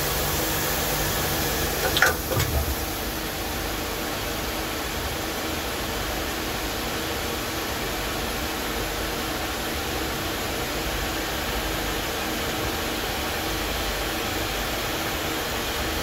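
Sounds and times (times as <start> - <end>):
lathe running with hiss: 0.0 - 5.9.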